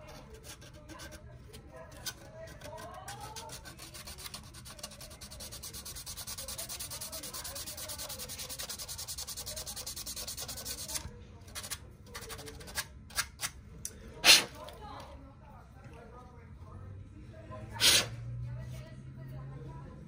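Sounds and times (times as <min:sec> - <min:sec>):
sandpaper rubbing: 0:02.7 - 0:11.0.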